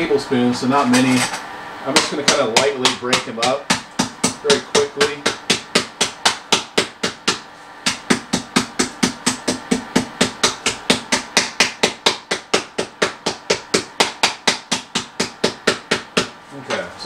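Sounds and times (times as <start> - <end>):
faint motor hum: 0.0 - 17.0
almonds struck on hard surface: 2.0 - 16.4.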